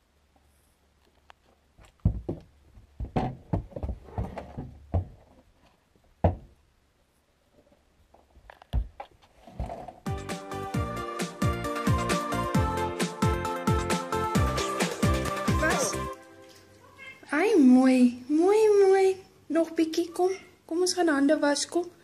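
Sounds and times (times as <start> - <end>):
hooves on wooden boards: 1.4 - 6.6
music with steady beat: 10.1 - 16.3.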